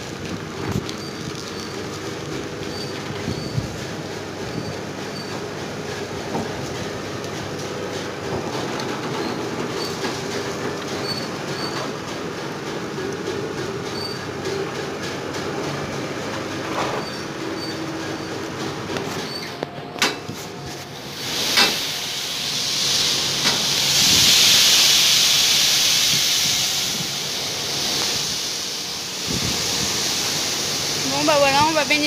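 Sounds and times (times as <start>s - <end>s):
tractor engine running: 0.0s - 21.0s.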